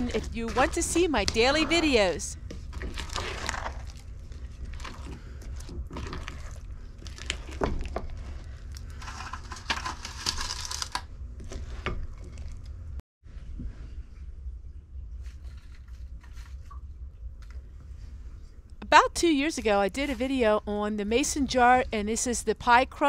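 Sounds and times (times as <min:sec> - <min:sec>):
crinkling: 0:00.0 - 0:11.1
steady low hum: 0:00.0 - 0:23.0.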